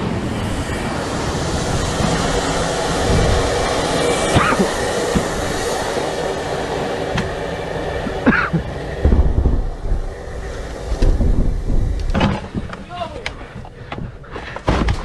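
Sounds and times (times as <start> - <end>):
missile roar in the air: 0.0 - 12.8
low bumps on microphone: 9.0 - 12.8.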